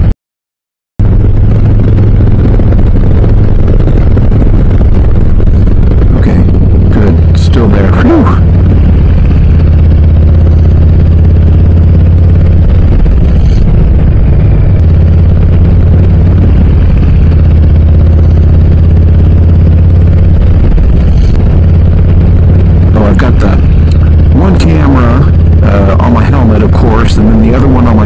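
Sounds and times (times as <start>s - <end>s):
motorcycle engine running: 1.0s - 28.0s.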